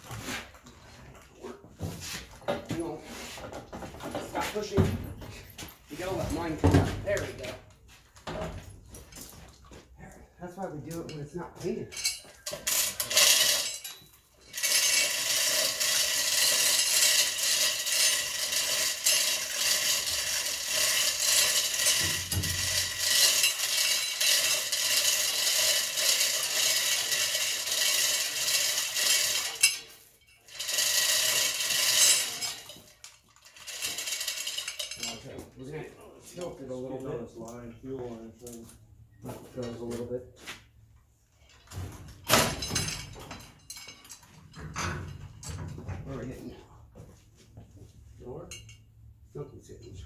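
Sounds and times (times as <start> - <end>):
chain rattling and clinking: 10.9 - 37.6, 41.4 - 45.9, 48.4 - 48.9.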